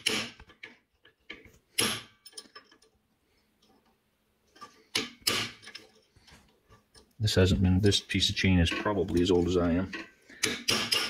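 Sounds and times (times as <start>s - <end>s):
hammer striking steel punch: 10.4s - 11.0s.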